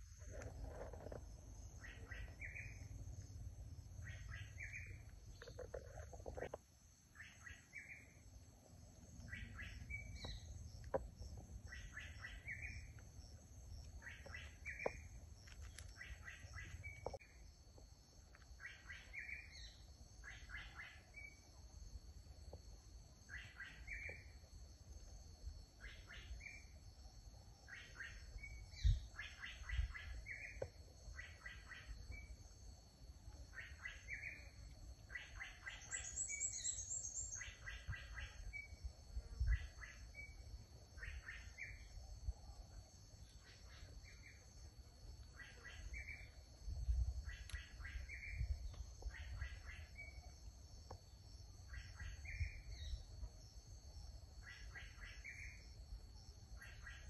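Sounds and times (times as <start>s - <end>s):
bird chirping: 0.0s - 8.2s, 9.0s - 17.4s, 18.4s - 21.5s, 23.2s - 24.4s, 33.5s - 44.6s, 45.2s - 50.4s.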